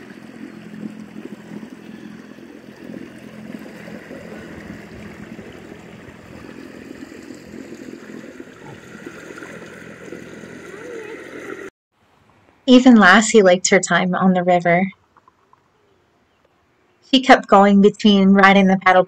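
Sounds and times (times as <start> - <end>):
water lapping and splashing: 0.0 - 11.7.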